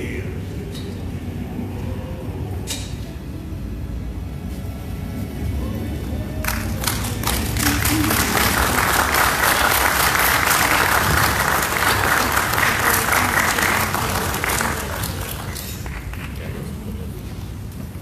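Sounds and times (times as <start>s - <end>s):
audience applause: 6.5s - 16.9s.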